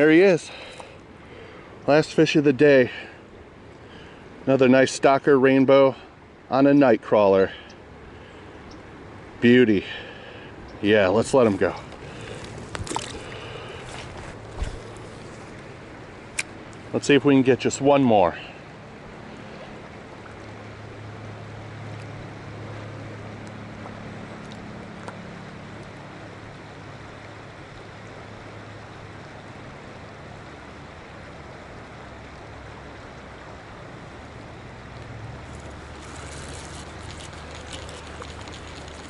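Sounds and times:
low steady hum: 0:00.0 - 0:39.0
river current rushing: 0:00.0 - 0:39.0
crackling rustle with ticks: 0:10.7 - 0:15.7, 0:34.9 - 0:39.0.

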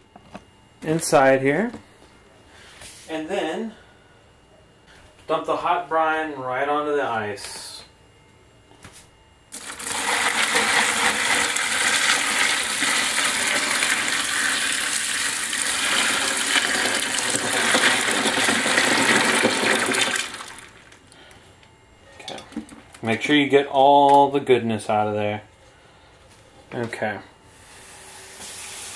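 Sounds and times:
liquid pouring onto ice: 0:09.6 - 0:20.8.

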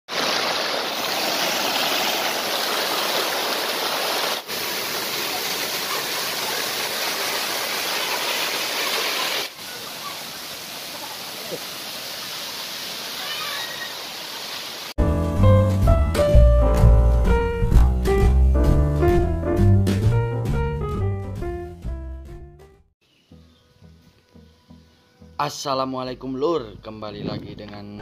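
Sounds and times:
stream cascading over rocks: 0:00.1 - 0:14.9
waterfall rushing: 0:00.1 - 0:15.0.

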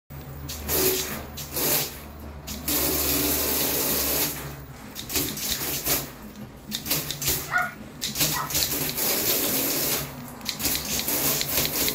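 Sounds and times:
water spraying against glass: 0:08.1 - 0:11.9.

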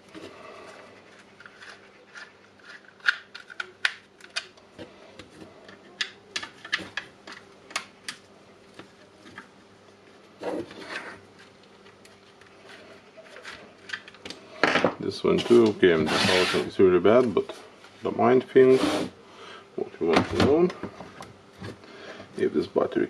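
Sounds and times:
rubbing scrape: 0:15.4 - 0:16.7, 0:18.7 - 0:19.2.

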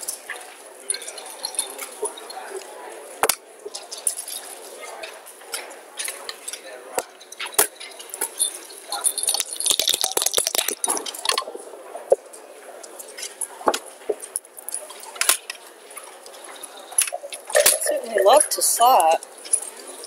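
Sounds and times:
checkers clacking on a board: 0:05.6 - 0:11.5, 0:16.2 - 0:20.0
dice rattling in a cup: 0:09.0 - 0:11.2, 0:17.1 - 0:18.6.

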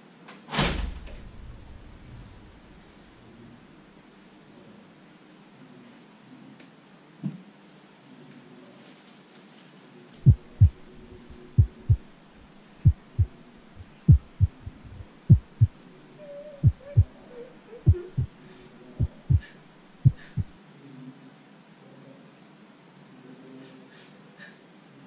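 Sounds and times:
heartbeat double thumps: 0:10.2 - 0:12.1, 0:12.8 - 0:15.8, 0:16.6 - 0:17.1, 0:17.8 - 0:18.4, 0:19.0 - 0:20.6.

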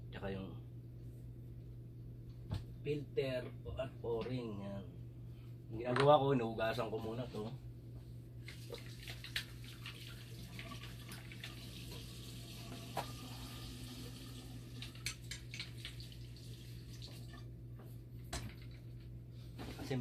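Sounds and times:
steady low hum: 0:00.0 - 0:09.0
tap water running into sink: 0:08.5 - 0:17.5.

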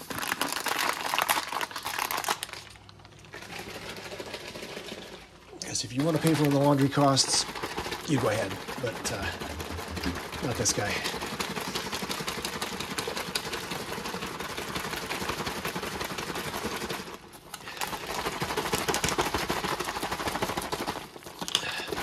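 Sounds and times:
plastic pouch crinkling: 0:00.0 - 0:13.4.

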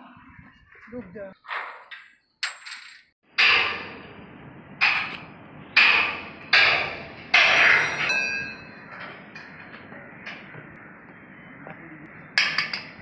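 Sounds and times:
hammer clanging on steel: 0:02.4 - 0:04.2, 0:04.8 - 0:05.2, 0:05.8 - 0:10.8, 0:12.4 - 0:13.0.

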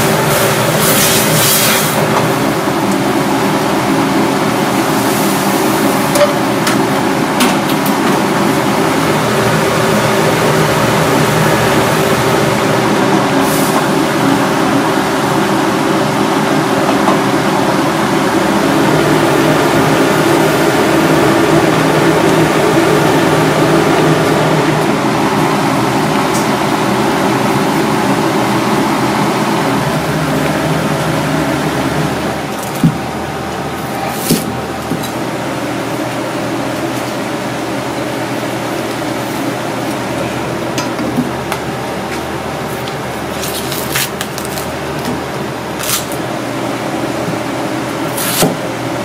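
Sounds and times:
gas burner roaring: 0:00.0 - 0:49.0.

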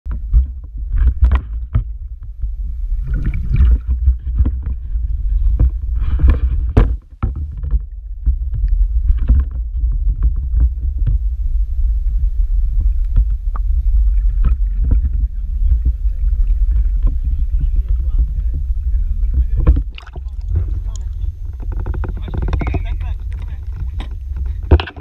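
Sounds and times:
underwater rumble of moving water: 0:00.0 - 0:25.0
water splashing against camera: 0:00.1 - 0:11.4, 0:12.8 - 0:25.0.

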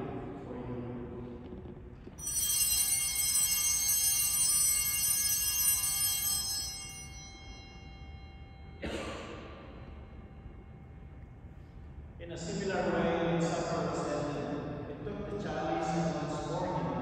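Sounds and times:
bells ringing: 0:02.2 - 0:11.8.

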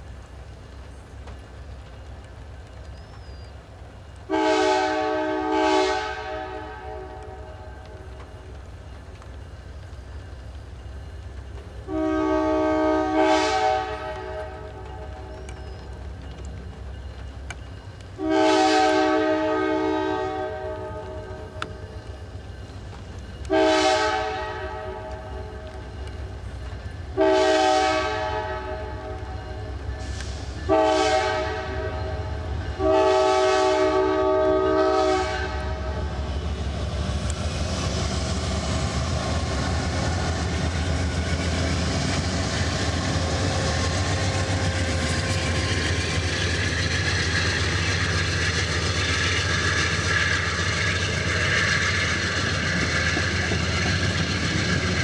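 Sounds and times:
wheels clicking over rail joints: 0:00.0 - 0:04.4, 0:05.0 - 0:19.5, 0:34.8 - 0:55.0
train rumbling by: 0:00.0 - 0:55.0
train air horn blasts: 0:04.3 - 0:08.0, 0:11.9 - 0:15.4, 0:18.2 - 0:21.8, 0:23.5 - 0:25.6, 0:27.1 - 0:36.2.

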